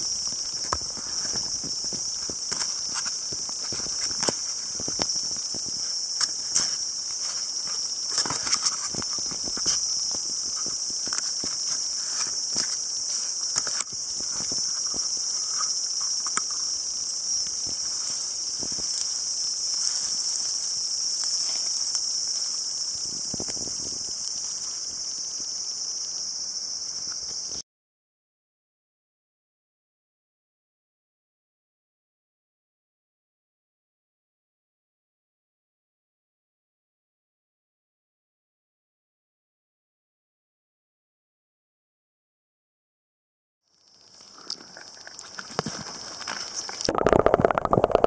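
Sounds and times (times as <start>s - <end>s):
insects droning: 0.0s - 27.6s, 43.7s - 48.0s.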